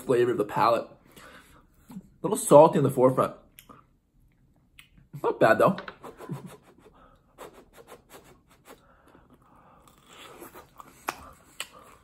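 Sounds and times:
wet mouth chewing sounds: 0:07.8 - 0:12.0.

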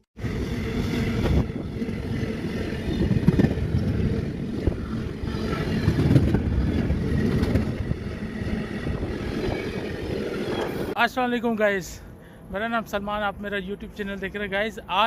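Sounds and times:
train wheels rumbling on rails: 0:00.2 - 0:11.0.

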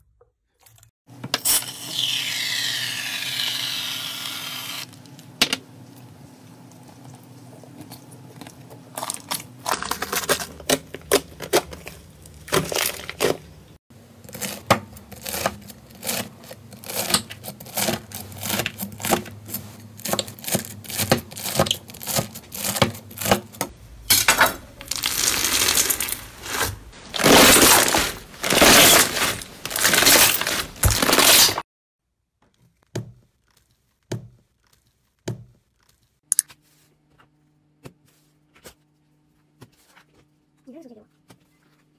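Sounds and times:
crunchy slime crackling: 0:24.8 - 0:31.6.

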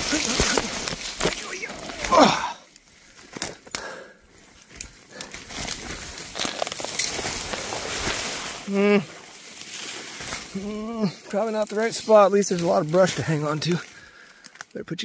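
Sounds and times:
branches rustling and snapping: 0:00.0 - 0:14.8
person grunting: 0:01.3 - 0:02.7, 0:08.7 - 0:09.2, 0:10.5 - 0:11.2.

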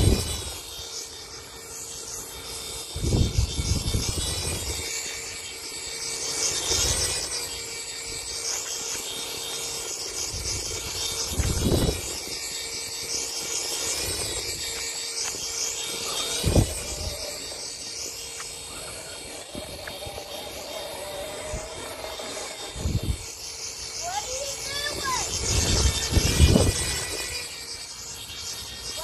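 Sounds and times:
drone propellers buzzing: 0:00.0 - 0:29.0.

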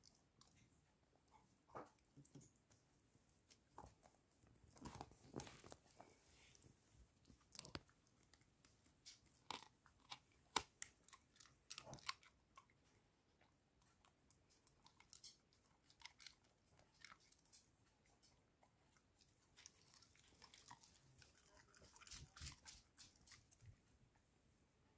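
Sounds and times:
dog chewing treat: 0:07.5 - 0:12.8, 0:14.5 - 0:23.8.

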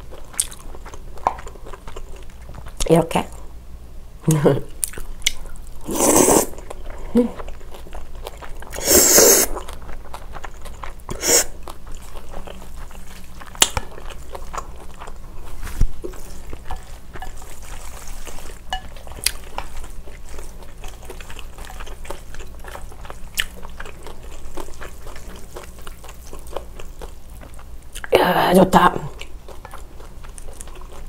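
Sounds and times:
chewing noodles: 0:04.8 - 0:28.2, 0:29.1 - 0:31.0
chopsticks stirring noodles in bowl: 0:15.0 - 0:22.2.

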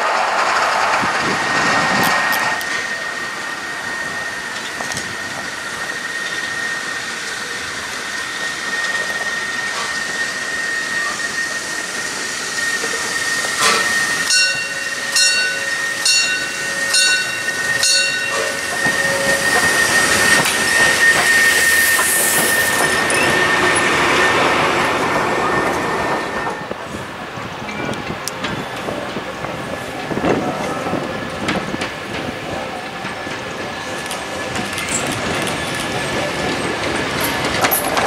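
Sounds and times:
hiss of steam: 0:00.0 - 0:38.0
steam locomotive passing: 0:00.0 - 0:38.0
steady high-pitched tone: 0:02.2 - 0:35.2
short ringing tones: 0:13.6 - 0:20.3.

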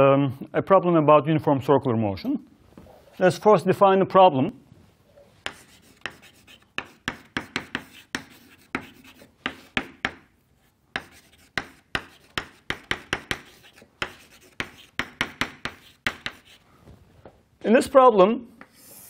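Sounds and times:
chalk tapping on blackboard: 0:05.4 - 0:10.3, 0:10.9 - 0:16.6.

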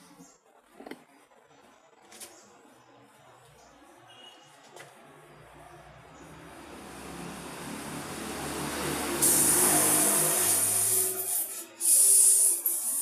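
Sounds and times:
vehicle engine passing: 0:05.9 - 0:11.3
loud hiss: 0:08.9 - 0:13.0.

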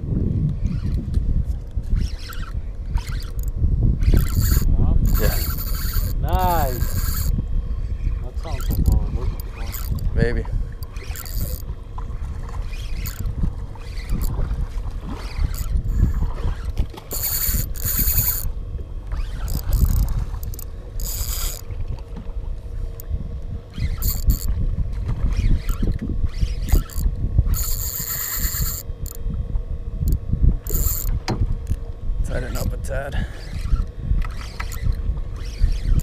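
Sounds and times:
wind and water rumble: 0:00.0 - 0:36.0
fishing reel whirring: 0:00.5 - 0:36.0
mechanical clicks: 0:02.0 - 0:07.3, 0:08.4 - 0:10.1, 0:19.1 - 0:21.7.

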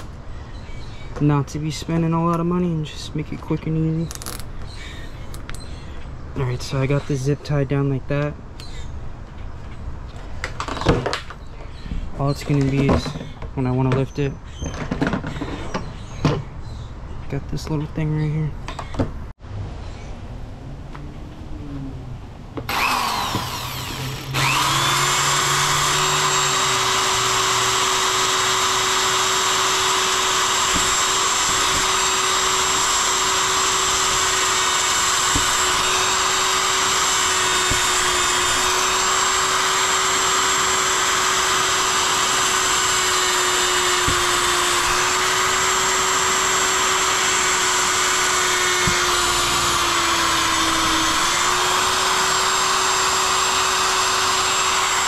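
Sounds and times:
electric drill on plastic: 0:22.7 - 0:55.0.

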